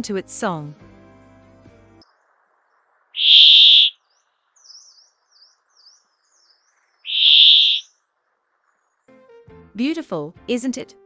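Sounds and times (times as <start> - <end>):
harsh buzzy bird wheezes: 3.2 - 3.9, 7.1 - 7.8
high bird twittering: 3.2 - 4.0, 4.6 - 7.9.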